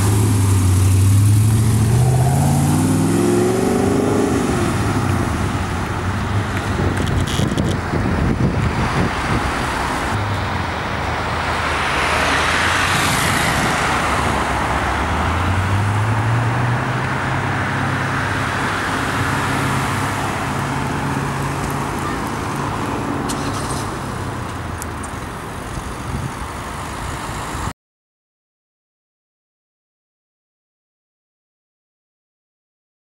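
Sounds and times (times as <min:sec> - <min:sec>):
vehicle passing: 0:00.0 - 0:25.0
road traffic noise: 0:00.0 - 0:27.7.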